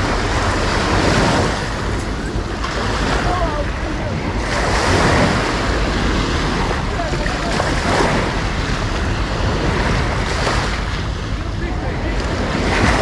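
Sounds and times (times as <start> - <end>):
sea waves washing onto beach: 0.0 - 13.0
wind buffeting microphone: 0.0 - 13.0
faint voices of people: 6.5 - 9.4, 11.0 - 13.0.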